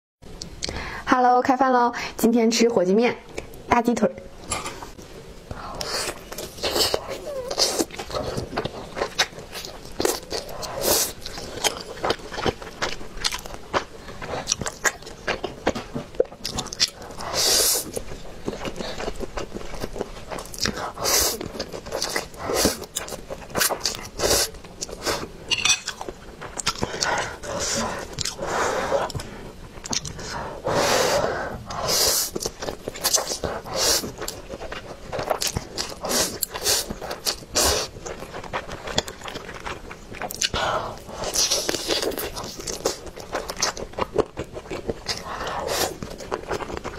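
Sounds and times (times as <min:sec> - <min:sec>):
wet chewing: 0:05.6 - 0:30.4, 0:31.7 - 0:46.9
wet chewing and lip smacks: 0:29.1 - 0:30.2, 0:32.3 - 0:46.9.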